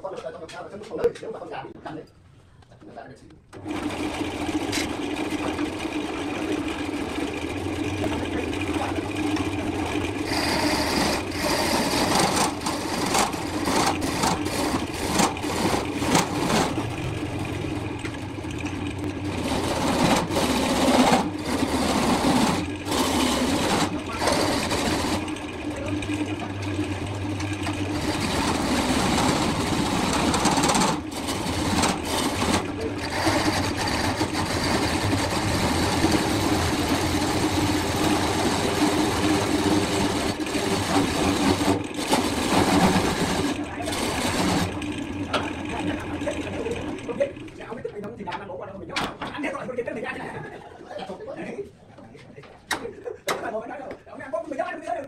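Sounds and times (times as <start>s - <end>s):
lathe motor hum: 3.6s - 47.8s
turning tool scraping wood: 8.8s - 17.0s, 18.6s - 25.6s, 27.4s - 44.9s.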